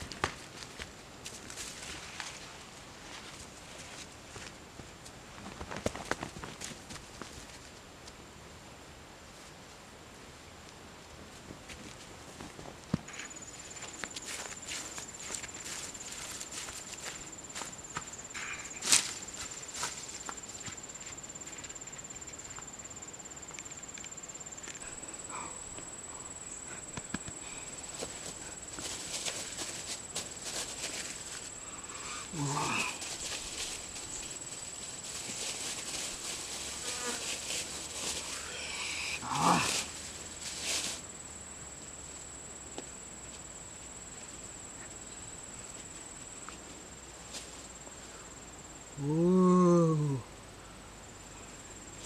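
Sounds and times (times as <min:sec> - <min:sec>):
insects trilling: 0:13.1 - 0:52.0
footsteps on dry grass: 0:13.2 - 0:21.7, 0:27.0 - 0:31.6, 0:32.4 - 0:38.4
plastic bag rustling: 0:27.7 - 0:31.5, 0:32.4 - 0:38.4.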